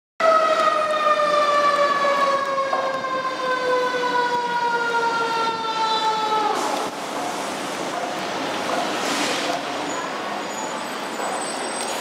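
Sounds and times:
fire engine siren falling tone: 0.2 - 7.0.

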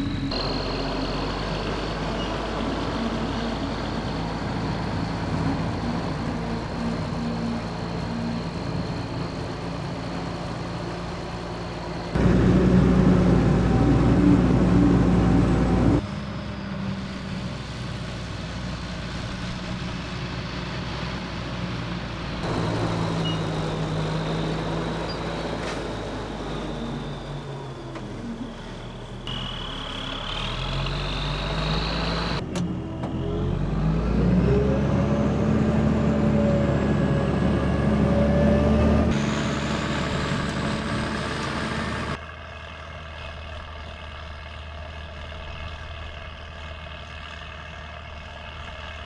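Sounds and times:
high whine: 0.0 - 17.2
tractor diesel engine under load: 0.0 - 49.0.

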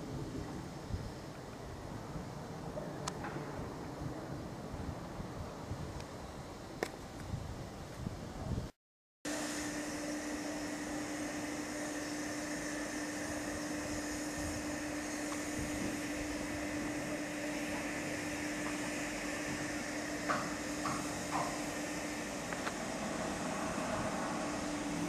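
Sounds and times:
hiss: 9.3 - 25.0
steady mechanical hum with tone: 9.3 - 25.0.

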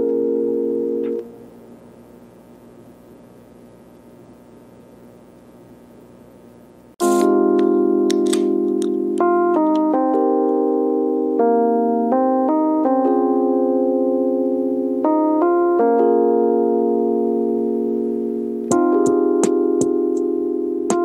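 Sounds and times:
held keyboard chords: 0.0 - 1.5, 7.0 - 21.0.

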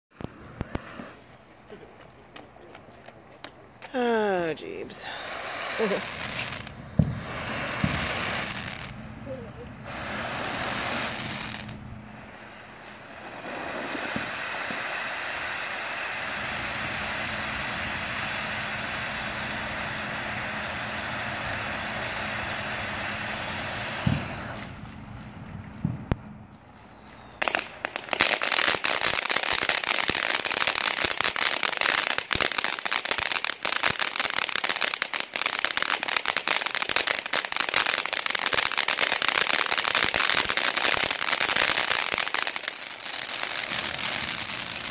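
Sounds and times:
sharp pops: 0.1 - 4.1
crackling sparks: 0.1 - 44.9
firework fountain hissing: 0.1 - 44.9.

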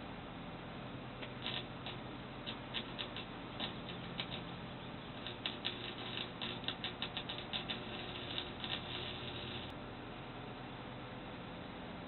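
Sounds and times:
steady low hum: 0.0 - 12.0
welder crackling and popping: 1.2 - 9.8.

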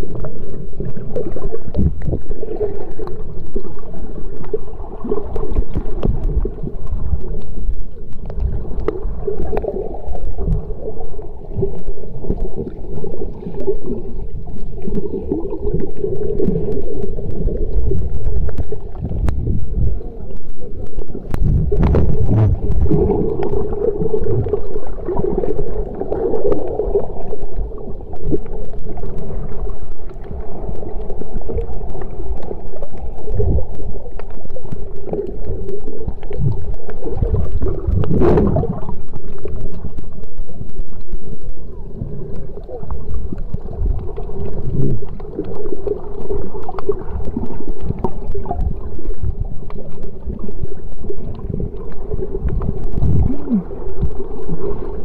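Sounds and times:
underwater rumbling and sloshing: 0.0 - 55.0
steady hum: 4.0 - 48.0.

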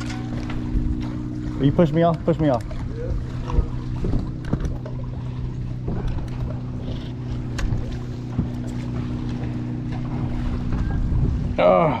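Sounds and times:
boat motor running: 0.0 - 12.0.

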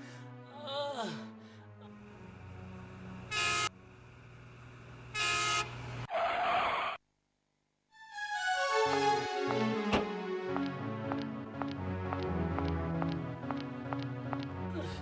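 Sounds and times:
vehicle horn honking: 3.3 - 3.7, 5.2 - 5.7.

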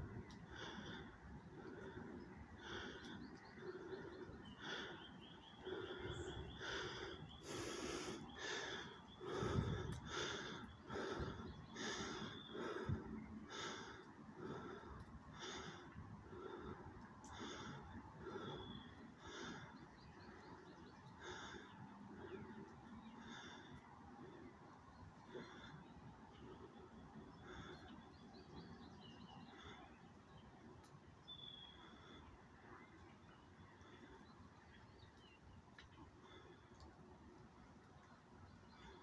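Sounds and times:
person panting heavily: 0.5 - 20.6, 21.2 - 22.5.

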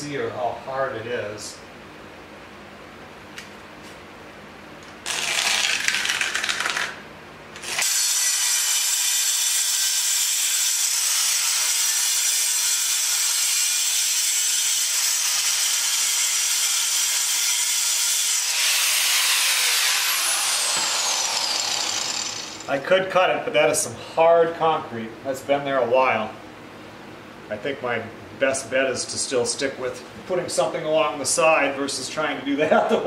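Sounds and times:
angle grinder cutting concrete: 5.1 - 6.1, 7.6 - 22.8.

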